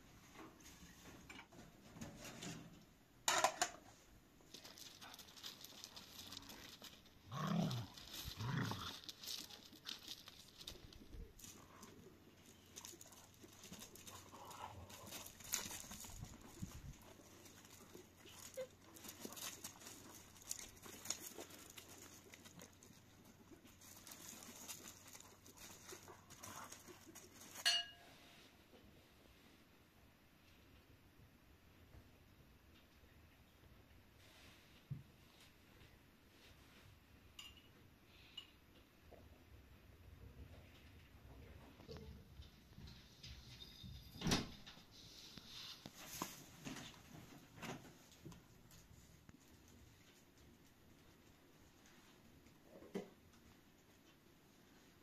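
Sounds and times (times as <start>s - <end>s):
dogs growling: 6.1s - 9.7s
ringing clink: 27.6s - 28.1s.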